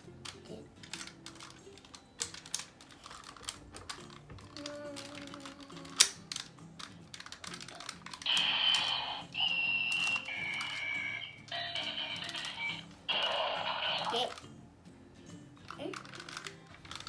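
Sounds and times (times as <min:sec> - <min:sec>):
plastic toy parts clicking: 0:00.1 - 0:13.3, 0:14.0 - 0:14.5, 0:15.6 - 0:17.0
electronic toy tones: 0:08.3 - 0:14.2.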